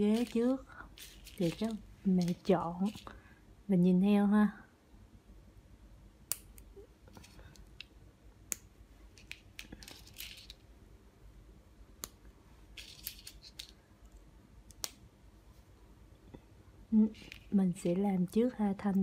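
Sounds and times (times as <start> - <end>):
plastic pieces rustling: 0.0 - 3.2, 9.2 - 10.6, 12.8 - 13.8.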